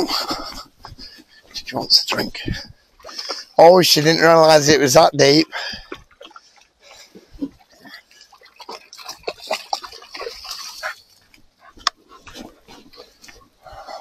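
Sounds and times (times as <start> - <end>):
dog splashing in water: 5.4 - 6.6, 7.4 - 13.7
dog drinking: 5.4 - 13.9.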